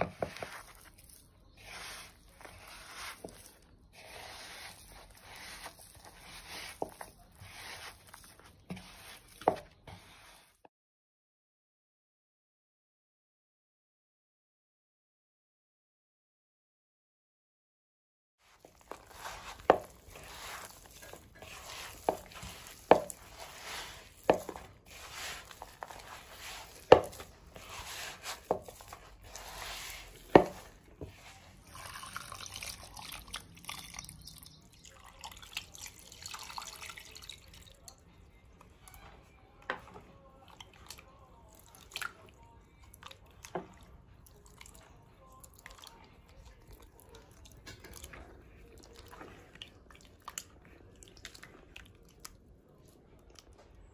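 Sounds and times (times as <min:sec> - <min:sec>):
hand squishing batter: 0:00.0 - 0:10.6, 0:18.4 - 0:53.9
water pouring: 0:31.6 - 0:37.9.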